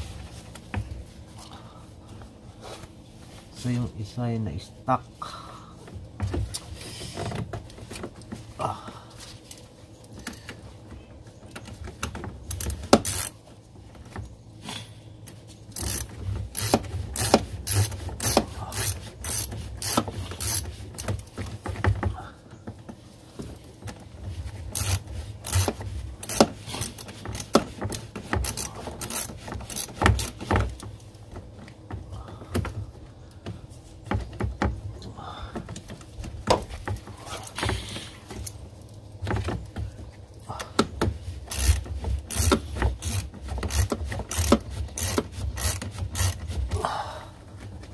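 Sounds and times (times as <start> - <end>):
ratchet wrench clicking: 12.5 - 13.3, 15.7 - 20.6, 24.7 - 27.6, 28.4 - 30.4, 41.5 - 46.4.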